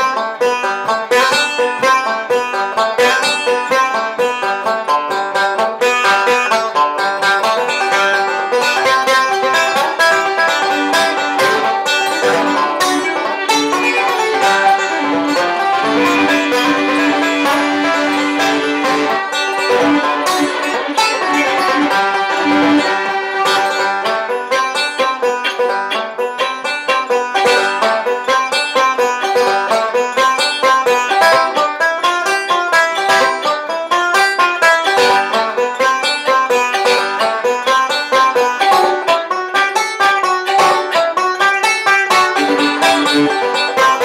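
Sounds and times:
banjo instrumental tune: 0.0s - 44.0s.

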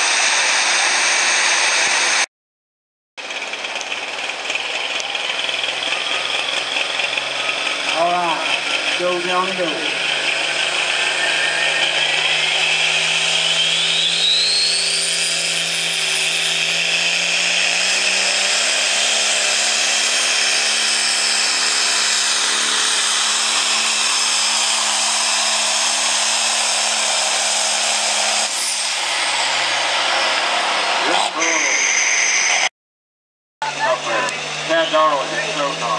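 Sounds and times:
diesel tractor engine at full throttle: 0.0s - 2.3s, 3.2s - 31.8s, 33.6s - 35.9s
high turbo whistle: 10.0s - 17.3s, 28.5s - 32.7s.

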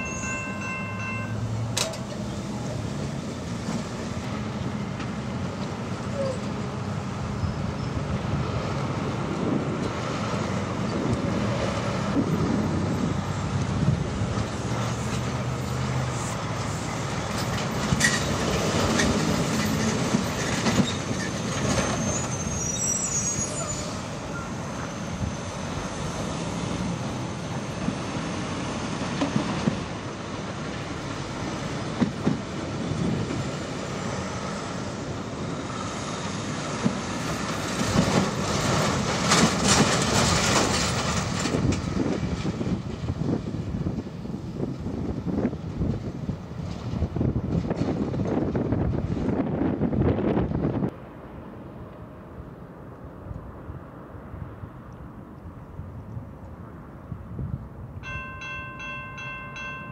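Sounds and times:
road noise: 0.0s - 59.9s
truck diesel engines: 0.0s - 59.9s
wheels knocking on rails: 36.7s - 42.8s.

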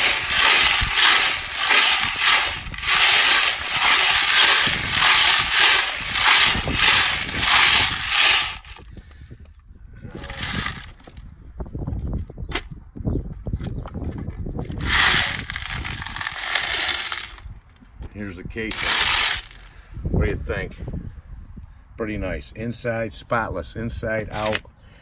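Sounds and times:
metal pins rattling in a turning drum: 0.0s - 8.8s.

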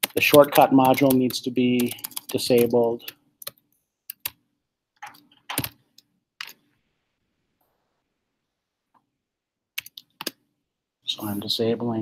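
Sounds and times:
computer keyboard keystrokes: 0.0s - 4.4s, 5.0s - 6.6s, 9.8s - 10.4s.

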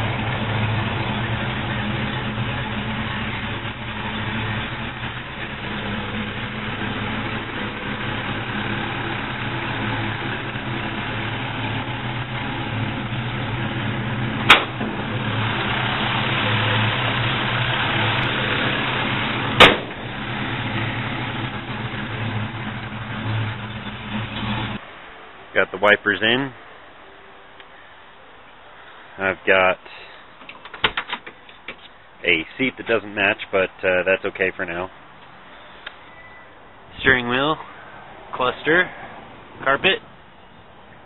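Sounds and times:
car engine idling: 0.0s - 24.8s.

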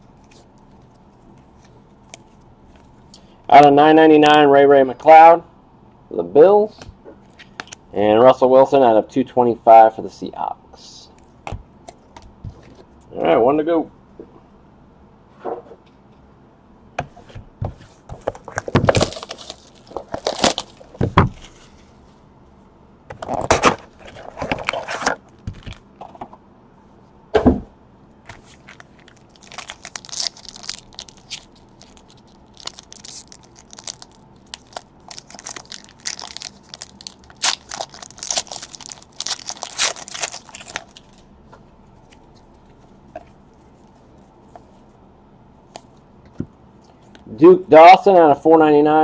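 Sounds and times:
foil pack crinkling: 18.3s - 21.5s, 28.3s - 41.3s
plastic wrap crinkling and tearing: 18.4s - 21.5s, 28.3s - 41.2s.

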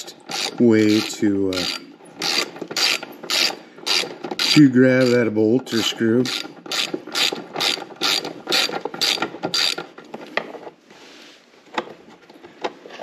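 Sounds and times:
socket ratchet clicking: 0.3s - 5.2s, 6.3s - 9.9s.

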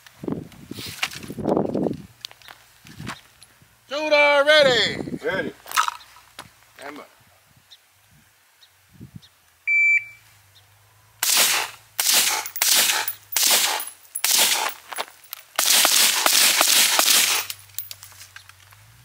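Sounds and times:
electronic timer beep: 9.7s - 10.2s
gunshots with echo: 11.2s - 14.8s, 15.6s - 17.5s.

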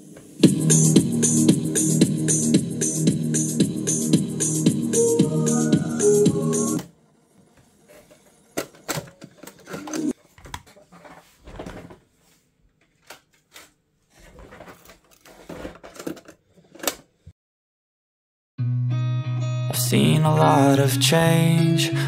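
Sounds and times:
music from cassette playback: 0.0s - 6.9s, 19.4s - 22.0s.

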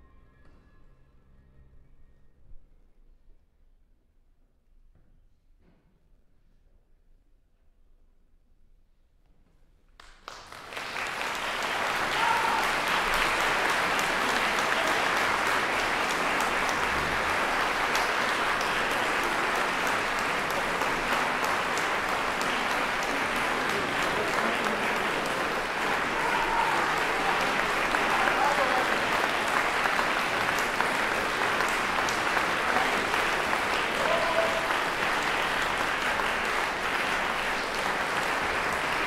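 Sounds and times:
audience applause: 10.0s - 39.0s.

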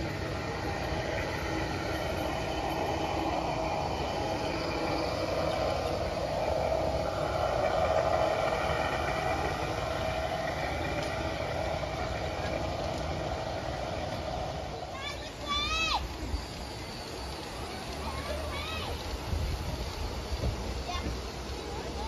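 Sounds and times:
model train motor and wheels: 0.0s - 22.0s.

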